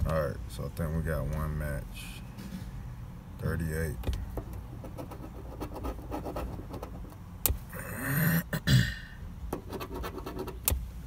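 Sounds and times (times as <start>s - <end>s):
breathy vocal sound: 7.7s - 9.2s.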